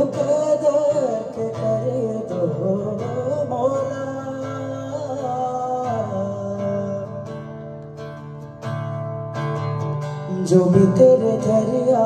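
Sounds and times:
man singing: 0:00.0 - 0:07.5, 0:10.2 - 0:12.0
acoustic guitar strumming: 0:00.0 - 0:12.0.

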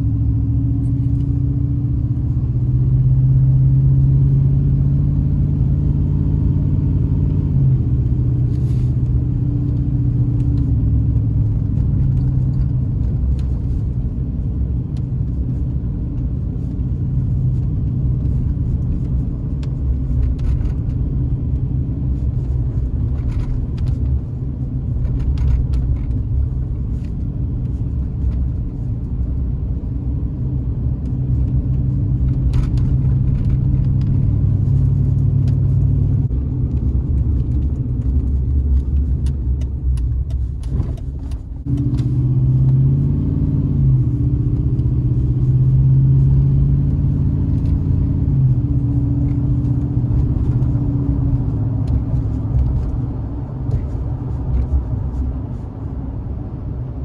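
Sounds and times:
engine and tyres rumbling: 0:00.0 - 0:57.0.

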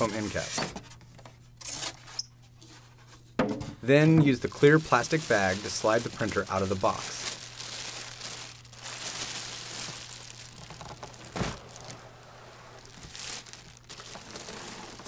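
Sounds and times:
plastic bag crinkling: 0:04.3 - 0:15.0.

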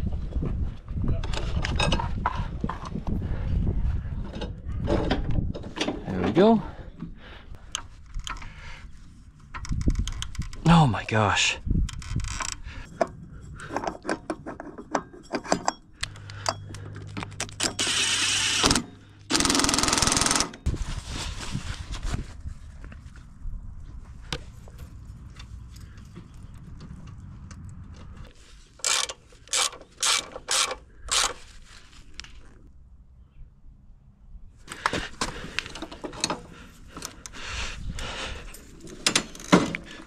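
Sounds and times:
tools clicking and clattering: 0:11.9 - 0:20.7, 0:28.8 - 0:31.4, 0:35.6 - 0:37.4, 0:38.4 - 0:40.0.

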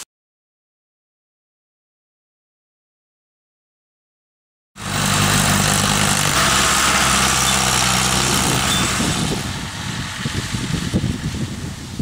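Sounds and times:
tractor diesel engine running: 0:04.8 - 0:12.0
wind rumbling on microphone: 0:04.8 - 0:12.0.

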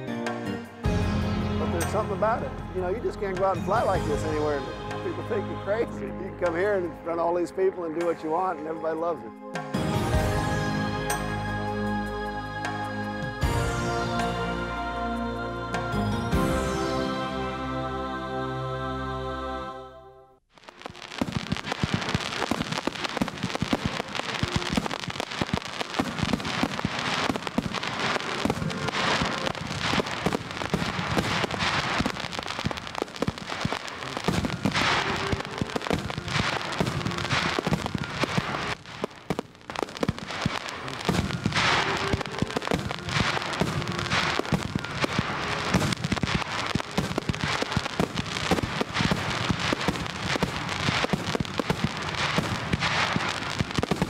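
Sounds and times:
fireworks crackling and popping: 0:01.6 - 0:09.2, 0:20.4 - 0:54.0
loud firework bursts: 0:20.5 - 0:54.0.

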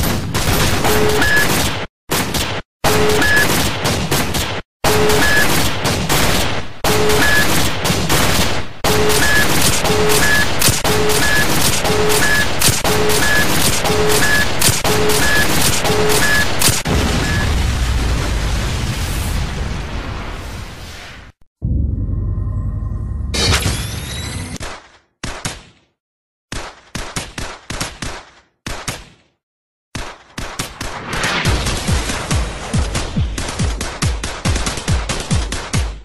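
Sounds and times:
rapid gunfire-like shots: 0:00.0 - 0:17.4, 0:24.6 - 0:29.4, 0:30.0 - 0:36.0
short beeps: 0:02.9 - 0:03.5, 0:04.9 - 0:05.5, 0:06.9 - 0:07.5, 0:08.9 - 0:17.5.

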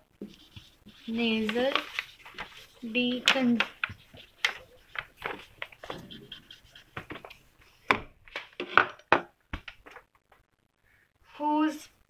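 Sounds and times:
marker writing on whiteboard: 0:00.2 - 0:07.9.

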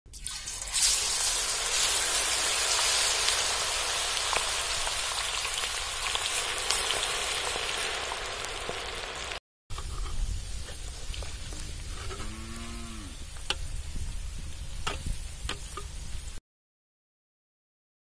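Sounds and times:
food deep-frying in oil: 0:00.1 - 0:11.9.

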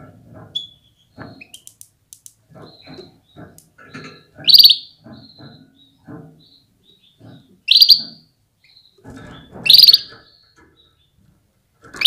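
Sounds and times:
canary chirping calls: 0:02.5 - 0:11.2.

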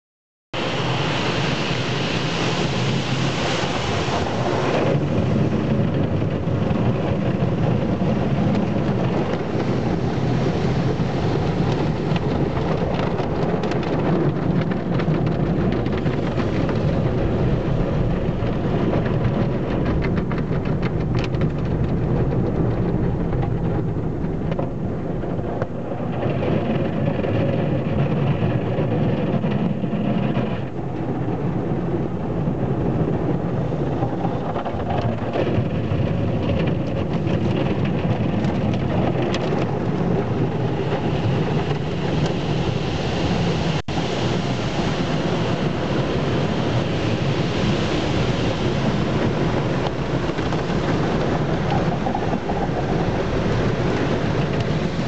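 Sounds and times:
hissing water spray: 0:00.6 - 0:05.4
car wash water jets and brushes: 0:00.6 - 0:55.0
low rumble: 0:00.6 - 0:55.0.

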